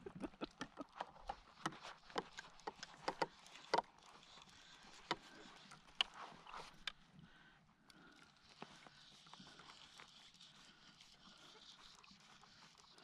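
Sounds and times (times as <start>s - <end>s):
gear knocking on plastic kayak hull: 2.1s - 3.9s.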